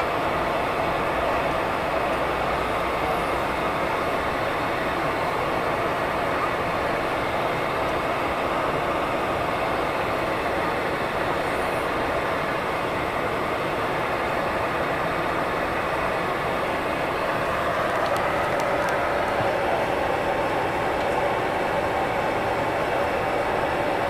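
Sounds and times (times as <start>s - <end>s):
turboprop engines droning in cabin: 0.0s - 24.0s.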